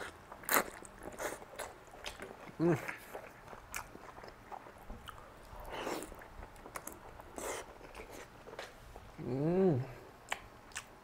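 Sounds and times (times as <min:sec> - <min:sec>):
man chewing noodles: 0:00.0 - 0:08.8, 0:10.2 - 0:11.0
man humming: 0:09.2 - 0:10.0.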